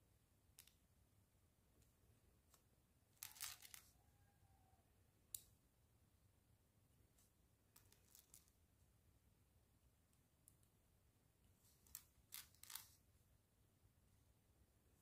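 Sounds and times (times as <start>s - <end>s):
plastic building bricks clicking: 3.2s - 3.9s.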